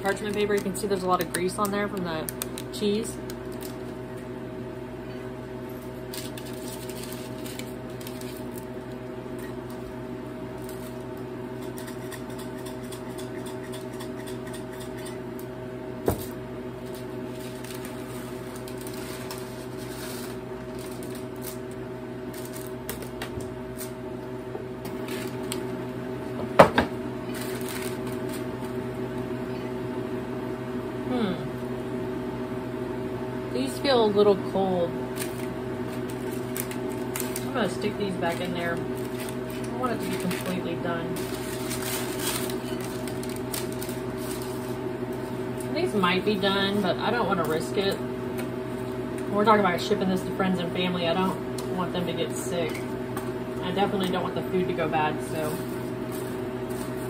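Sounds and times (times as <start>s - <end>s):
parchment paper crinkling: 0.0s - 4.0s, 6.1s - 9.9s, 16.8s - 23.1s, 27.3s - 28.6s, 35.2s - 46.8s
freeze dryer refrigeration hum: 0.0s - 57.0s.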